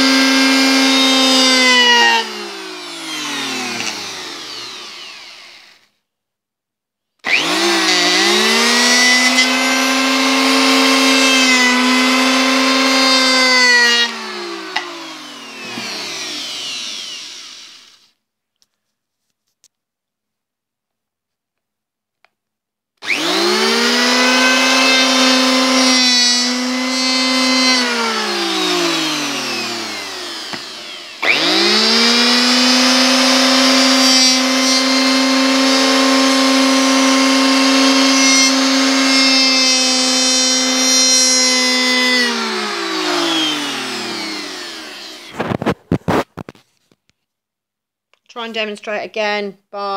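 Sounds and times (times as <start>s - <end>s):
electric hand planer running: 0.0s - 5.9s, 7.2s - 18.1s, 23.0s - 46.2s.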